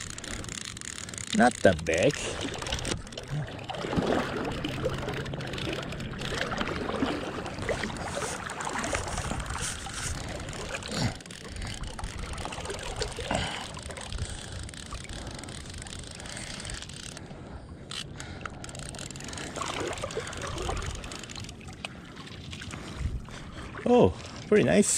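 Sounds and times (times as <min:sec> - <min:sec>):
river water splashing and rushing: 0:01.6 - 0:14.0, 0:19.5 - 0:24.3
jacket fabric brushing: 0:08.0 - 0:10.2.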